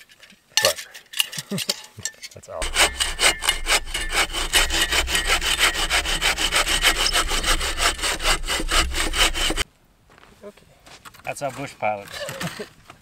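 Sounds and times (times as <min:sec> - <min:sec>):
hand saw cutting log: 0:02.6 - 0:09.6.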